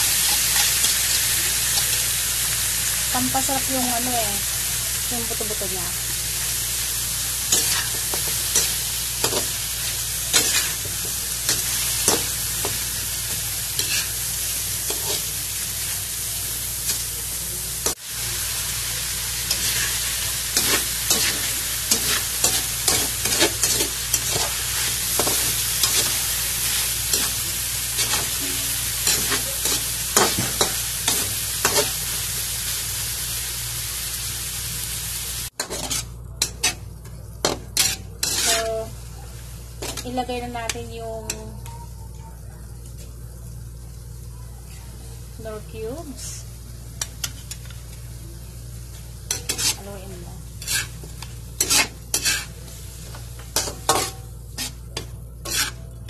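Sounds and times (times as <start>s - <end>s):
chicken sizzling in hot oil: 0.0s - 36.8s, 37.8s - 42.0s, 43.2s - 56.0s
metal spatula scraping wok: 7.5s - 12.8s, 19.5s - 32.0s, 35.6s - 36.8s, 37.8s - 38.9s, 49.3s - 50.0s, 50.6s - 52.7s, 53.6s - 55.9s.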